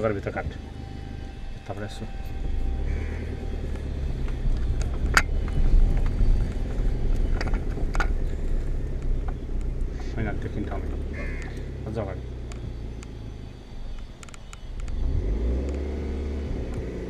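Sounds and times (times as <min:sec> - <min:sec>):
car engine and road rumble: 0:00.0 - 0:17.0.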